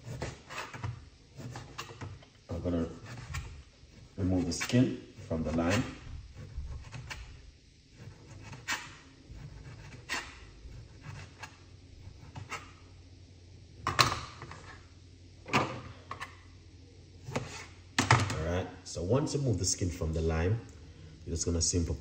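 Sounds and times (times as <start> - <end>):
knocks and scrapes peeling fruit: 0.0 - 12.8
low steady hum: 0.0 - 22.0.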